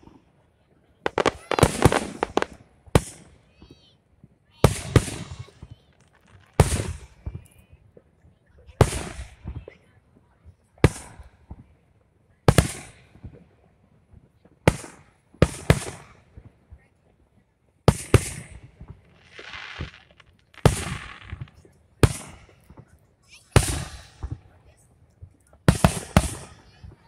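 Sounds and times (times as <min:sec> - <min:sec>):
firework shells bursting: 0:01.1 - 0:03.3, 0:17.9 - 0:22.8.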